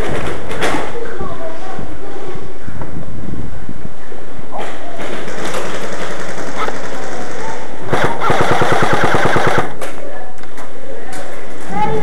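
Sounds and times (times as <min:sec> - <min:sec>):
airsoft gun automatic burst: 0:05.2 - 0:09.8
airsoft gun single shots: 0:07.9 - 0:09.8.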